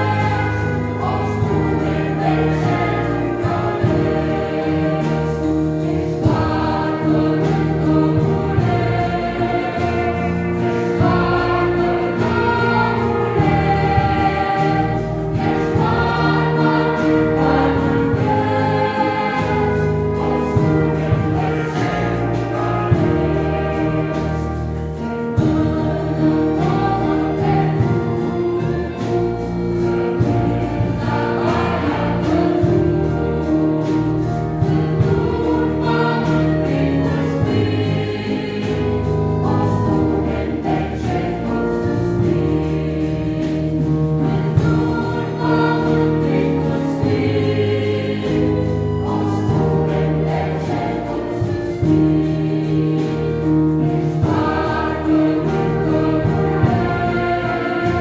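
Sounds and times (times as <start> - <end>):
french horn: 0.0 - 37.8
choir singing a hymn: 0.0 - 58.0
strings playing: 0.0 - 58.0.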